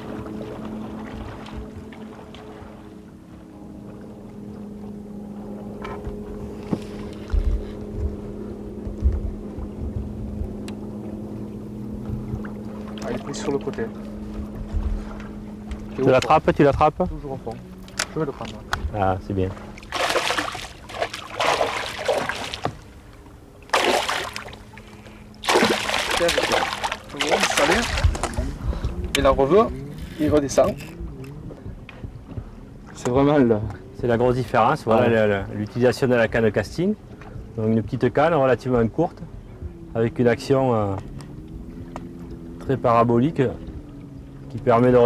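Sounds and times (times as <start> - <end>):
boat motor humming: 0.0 - 45.0
wind thumps on microphone: 6.0 - 10.8, 27.6 - 29.4
fish thrashing and splashing: 19.7 - 22.9, 23.6 - 28.9.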